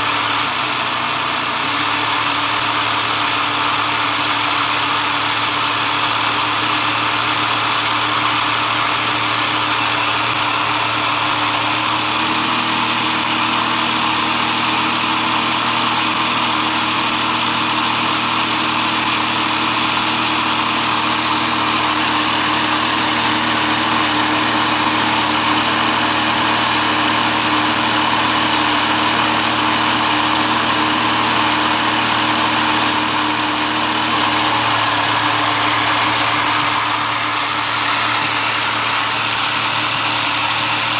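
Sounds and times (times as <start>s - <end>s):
electric motor whirring: 19.0s - 40.9s.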